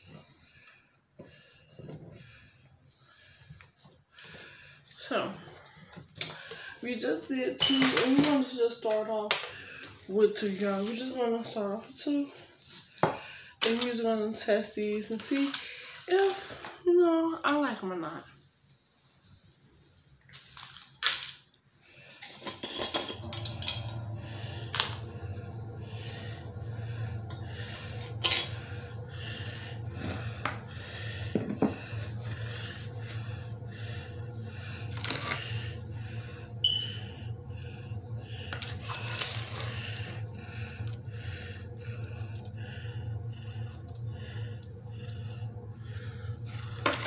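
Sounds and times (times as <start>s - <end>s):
steady low hum: 21.8s - 47.0s.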